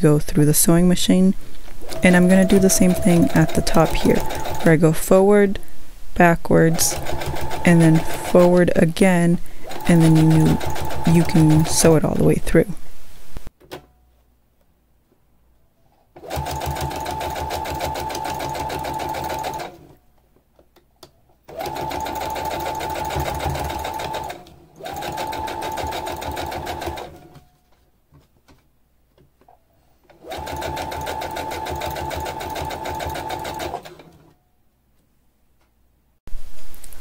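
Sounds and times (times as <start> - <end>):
sewing machine stitching: 1.8 - 4.8, 6.7 - 8.8, 9.6 - 12.1, 16.2 - 19.9, 21.5 - 27.4, 30.1 - 34.3.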